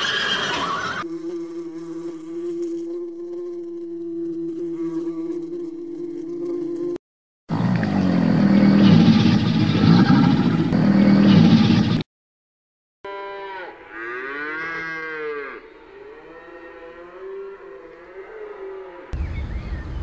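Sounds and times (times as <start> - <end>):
cow mooing: 13.1 - 19.2.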